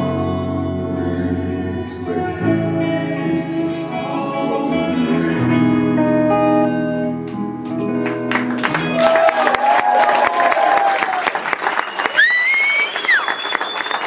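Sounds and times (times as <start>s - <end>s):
person singing: 0.0s - 6.8s
live band playing: 4.0s - 9.3s
audience applause: 8.0s - 14.0s.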